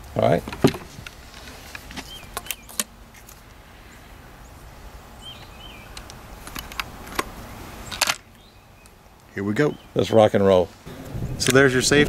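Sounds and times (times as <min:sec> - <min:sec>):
quiet outdoor background: 0:00.0 - 0:12.0
small bird chirping: 0:05.2 - 0:06.1
gun clicks and knocks: 0:06.0 - 0:07.3.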